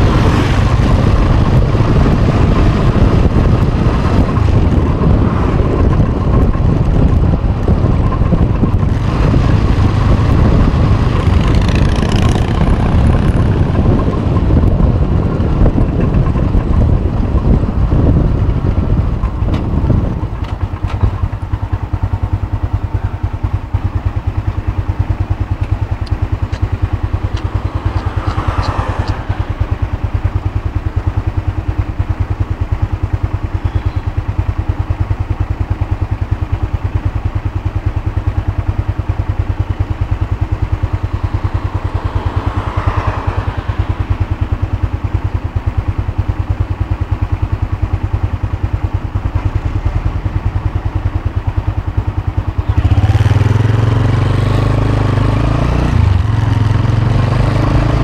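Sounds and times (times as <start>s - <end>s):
wind noise on microphone: 0.0s - 23.8s
motorcycle engine running: 0.0s - 58.0s.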